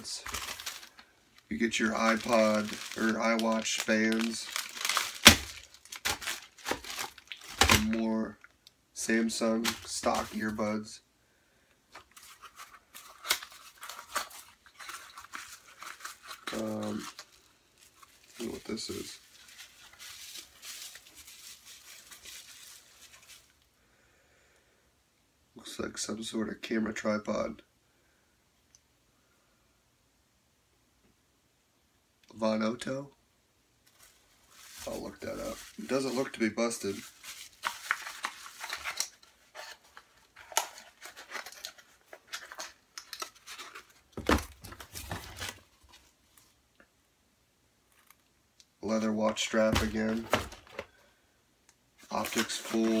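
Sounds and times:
plastic packaging crinkling: 0:00.0 - 0:08.4, 0:09.3 - 0:10.6, 0:12.0 - 0:23.6, 0:33.8 - 0:46.5, 0:52.0 - 0:53.0.

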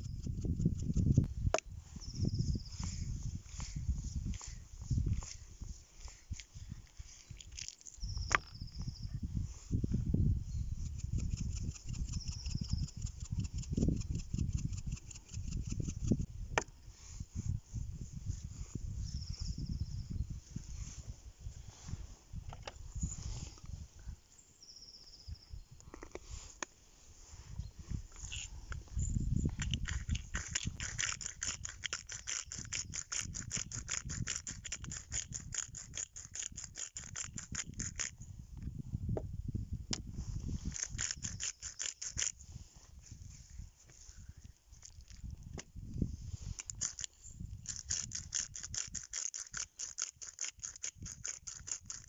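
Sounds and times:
salt shaker rattling: 0:29.6 - 0:38.1, 0:40.7 - 0:42.4, 0:46.6 - 0:52.0.

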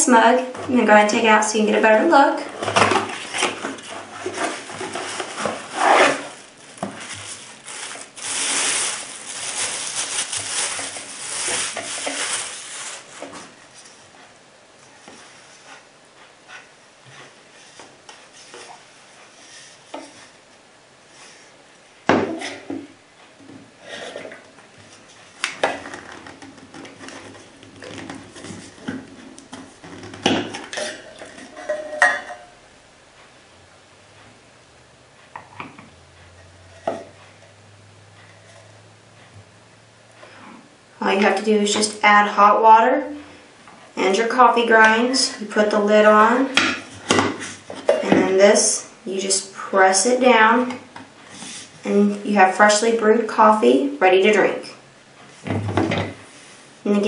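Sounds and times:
plastic bag crinkling: 0:03.0 - 0:13.6.

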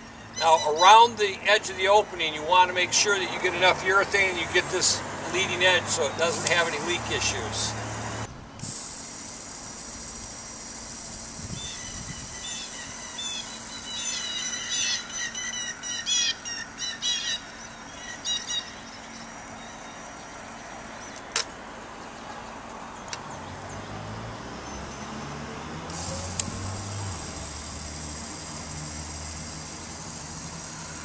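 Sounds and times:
birds chirping and squawking: 0:00.0 - 0:02.6, 0:11.5 - 0:21.3
sharp click: 0:21.2 - 0:21.5.

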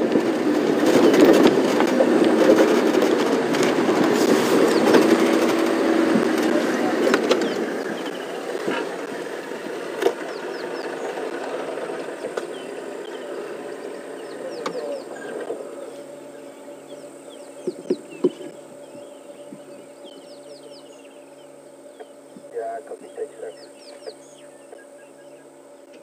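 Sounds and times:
vehicle engine on dirt track: 0:00.0 - 0:22.2
small birds chirping: 0:04.2 - 0:26.0.

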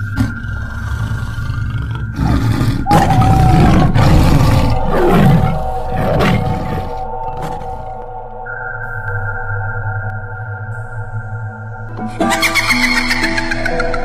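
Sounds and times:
rough growling effect: 0:00.0 - 0:07.8
low rumbling drone: 0:00.0 - 0:12.2.

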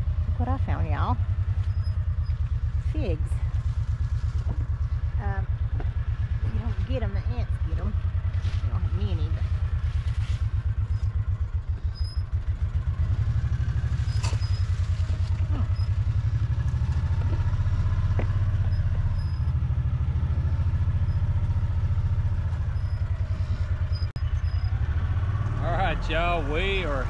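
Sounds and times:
vehicle engine running: 0:00.0 - 0:27.0.

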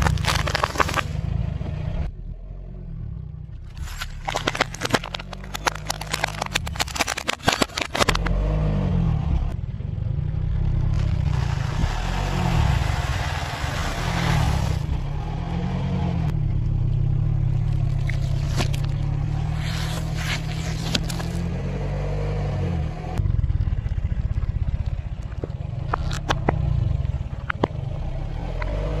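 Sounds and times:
tyre crushing objects: 0:00.0 - 0:01.2, 0:03.7 - 0:08.3, 0:10.9 - 0:15.2, 0:17.8 - 0:21.5
cracking and crunching: 0:00.0 - 0:01.3, 0:03.6 - 0:08.4, 0:10.8 - 0:15.3, 0:17.5 - 0:21.6, 0:25.2 - 0:26.7
car engine running low: 0:00.0 - 0:29.0
hiss: 0:11.2 - 0:15.0.

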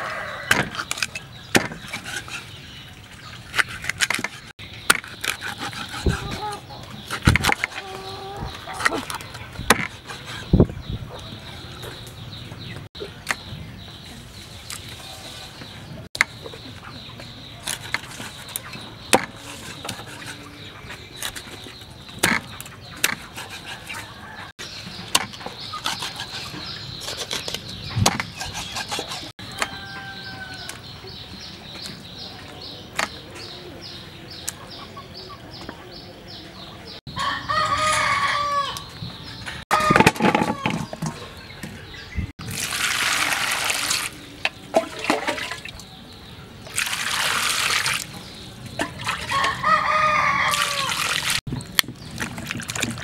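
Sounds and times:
rooster crowing: 0:00.0 - 0:00.5, 0:29.4 - 0:30.8, 0:37.2 - 0:38.8, 0:49.3 - 0:51.0
chickens clucking: 0:05.4 - 0:13.2.

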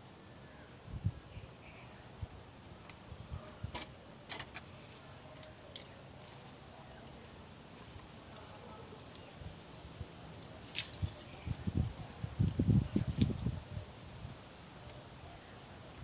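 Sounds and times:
small metal parts clicking and jingling: 0:05.7 - 0:09.3, 0:10.4 - 0:13.4.

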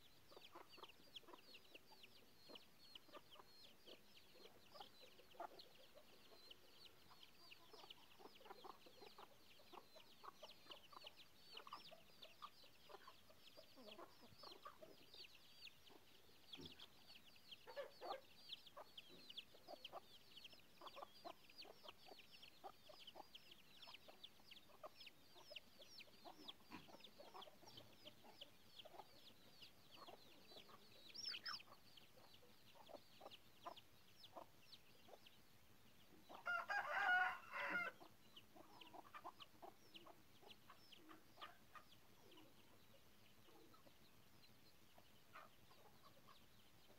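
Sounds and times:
chicks peeping: 0:00.0 - 0:46.9
adult chicken call: 0:36.4 - 0:38.0.

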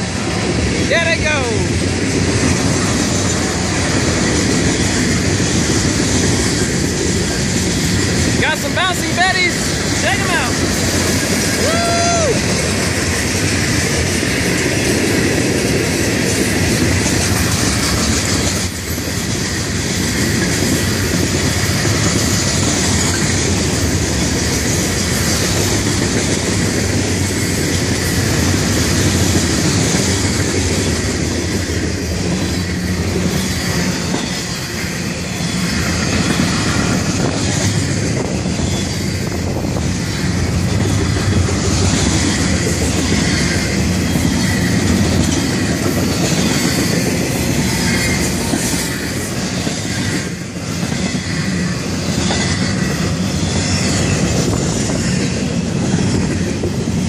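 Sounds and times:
freight cars rolling on rails: 0:00.0 - 0:57.0.

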